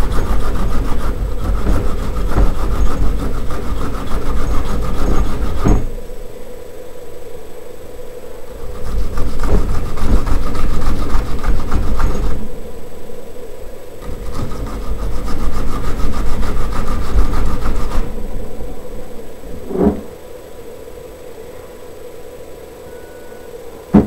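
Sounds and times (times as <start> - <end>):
onion grated on metal grater: 0.0 - 6.0, 8.7 - 12.5, 14.0 - 18.4.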